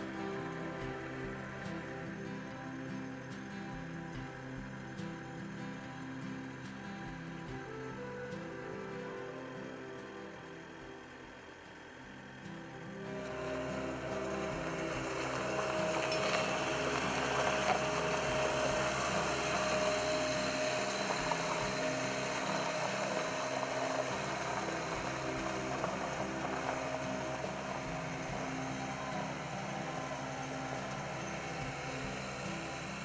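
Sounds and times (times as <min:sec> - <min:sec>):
diesel engine running: 0:12.4 - 0:33.0.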